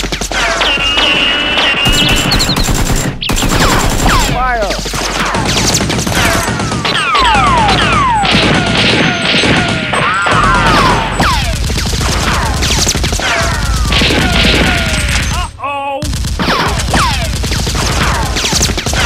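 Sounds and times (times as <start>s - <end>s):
automatic gunfire bursts: 1.0s - 15.3s, 16.1s - 19.0s.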